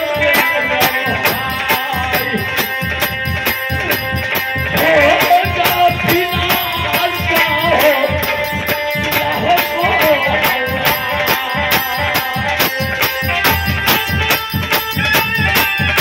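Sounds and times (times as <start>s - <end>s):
fast drum beat: 0.0s - 16.0s
jingling percussion: 0.0s - 16.0s.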